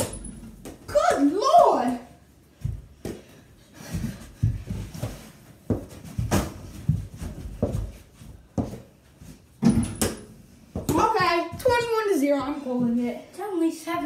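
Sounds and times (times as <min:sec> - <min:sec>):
feet thudding on floor: 0:02.6 - 0:10.1.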